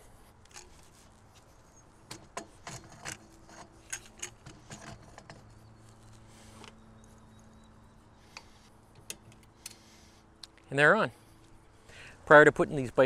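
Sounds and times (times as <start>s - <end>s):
metal clicks and scrapes: 0.4s - 7.4s.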